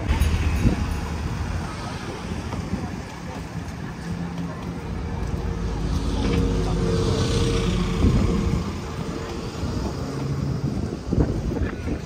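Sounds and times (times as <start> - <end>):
vehicle driving past: 0.0 - 3.0.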